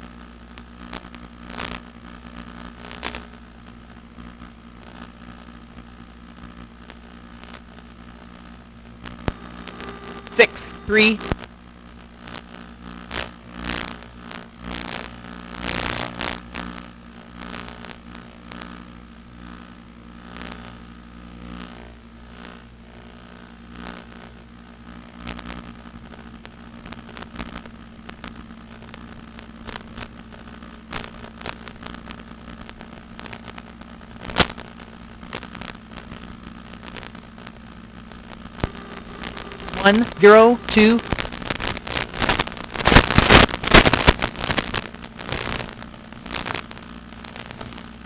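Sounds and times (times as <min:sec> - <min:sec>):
crackles: 0:09.3 - 0:11.4, 0:38.6 - 0:41.2.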